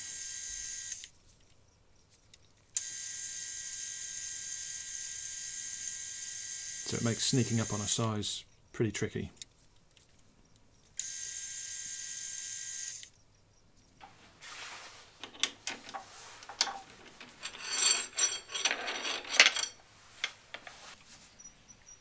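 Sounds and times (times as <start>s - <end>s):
steel parts clinking and scraping: 15.2s - 21.0s.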